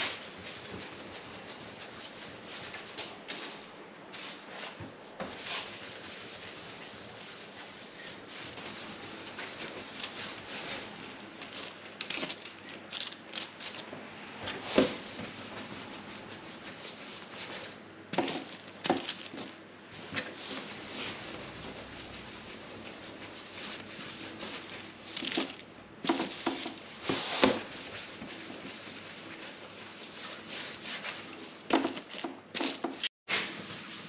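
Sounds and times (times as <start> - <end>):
dough rubbing on bench: 0.0 - 3.6, 4.2 - 11.8, 14.5 - 34.0.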